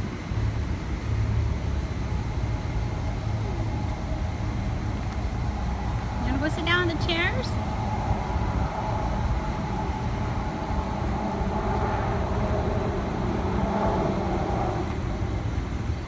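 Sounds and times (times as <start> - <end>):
machinery rumbling with hum: 0.0 - 16.0.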